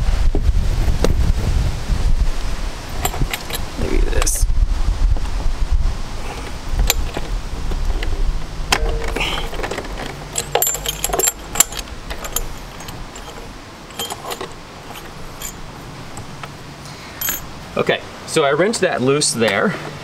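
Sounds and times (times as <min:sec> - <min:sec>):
metal wrench clinking and rattling: 0:03.0 - 0:04.4, 0:06.3 - 0:16.4, 0:17.2 - 0:17.5.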